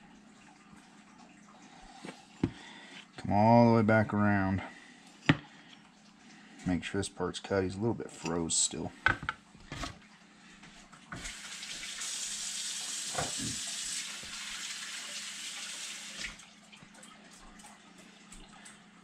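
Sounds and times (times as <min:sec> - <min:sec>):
water running from tap: 0:11.2 - 0:18.8.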